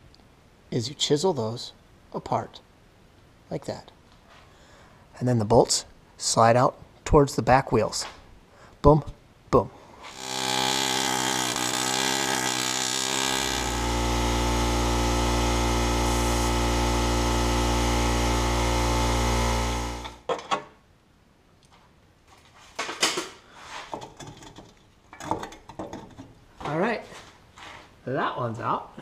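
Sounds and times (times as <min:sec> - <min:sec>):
air hammer buzzing: 0:10.1 - 0:20.3.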